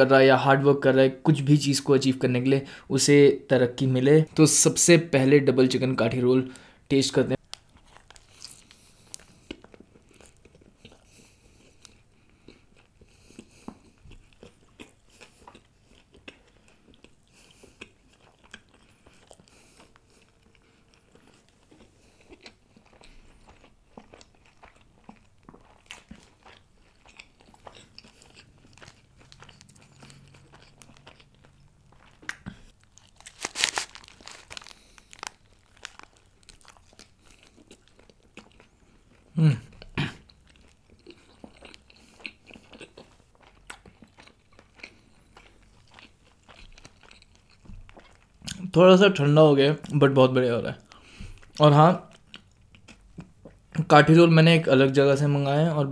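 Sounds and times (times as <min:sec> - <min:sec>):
close wet chewing: 0:07.4 - 0:48.7, 0:50.7 - 0:53.8.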